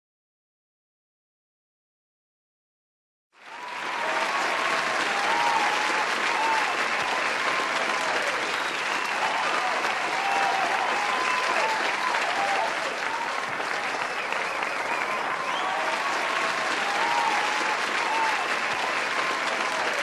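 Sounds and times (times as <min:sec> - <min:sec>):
crowd applauding: 0:03.4 - 0:20.0
crowd cheering: 0:03.4 - 0:20.0.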